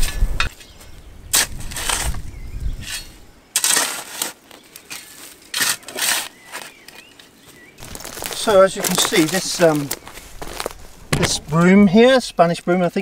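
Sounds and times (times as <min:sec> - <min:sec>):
hoe chopping dry soil: 0:01.3 - 0:02.2.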